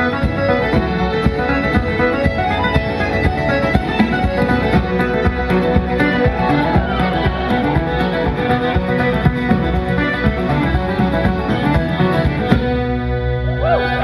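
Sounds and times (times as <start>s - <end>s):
traditional band playing reels: 0.0s - 14.0s.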